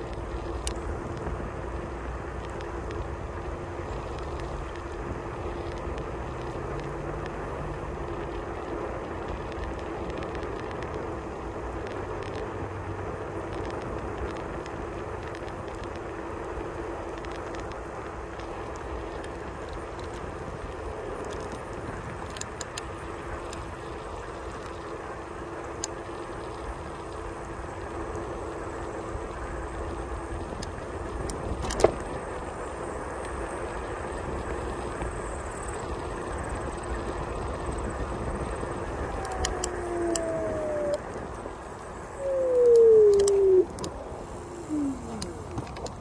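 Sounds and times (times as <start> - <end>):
low hum: 0.0 - 46.0
sharp ticks: 39.0 - 44.0.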